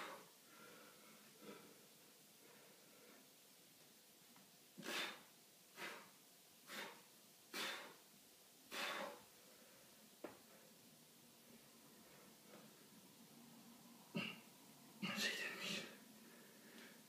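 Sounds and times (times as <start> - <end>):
man exhaling forcefully: 8.7 - 9.3.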